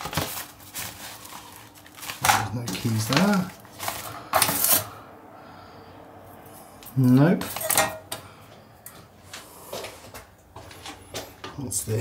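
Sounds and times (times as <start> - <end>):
stiff paper rustling on metal: 0.0 - 5.0.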